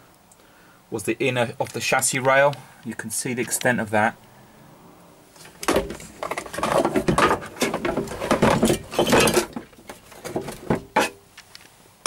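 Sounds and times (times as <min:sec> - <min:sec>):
scraping and clattering on metal: 0:05.4 - 0:11.2.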